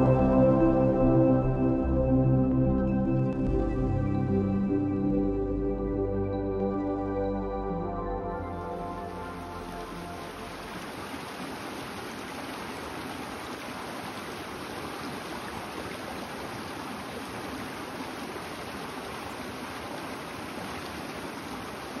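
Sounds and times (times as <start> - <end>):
stream rushing over rocks: 8.8 - 22.0.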